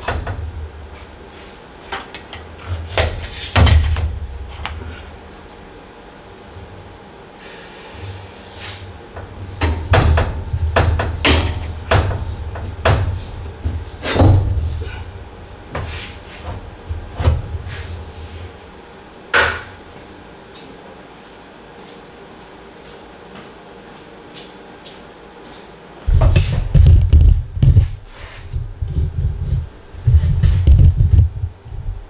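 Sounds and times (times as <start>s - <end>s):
dull low rumble: 26.1s - 32.0s.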